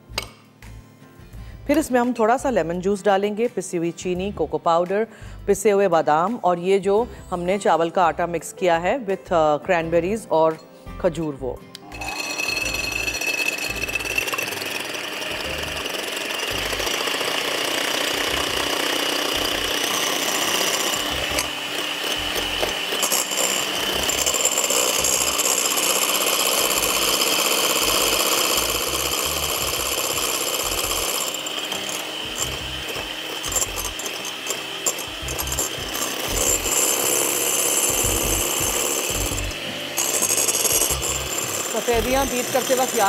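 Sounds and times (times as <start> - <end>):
electric mixer whirring: 11.8 - 43.0.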